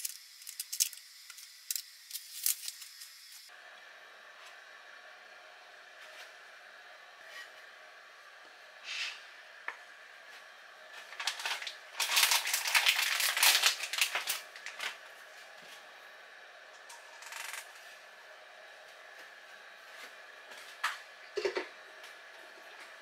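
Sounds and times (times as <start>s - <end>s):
small metal objects clattering: 0.0s - 3.1s.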